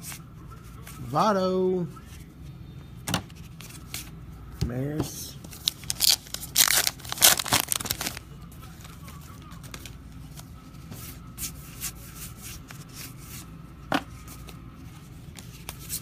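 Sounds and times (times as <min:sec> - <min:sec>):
wrapper tearing and crinkling: 0:05.6 - 0:08.2
cards sliding and flipping: 0:09.6 - 0:16.0.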